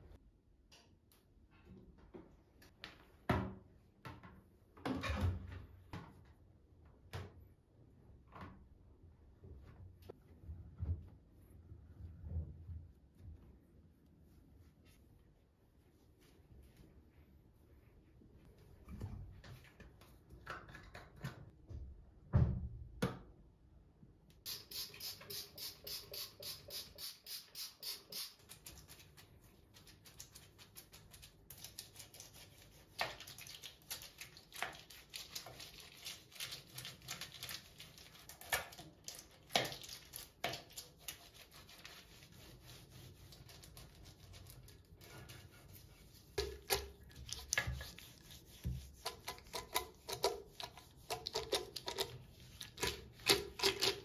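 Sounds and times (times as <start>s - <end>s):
brush scrubbing a ceramic sink: 24.6s - 54.0s.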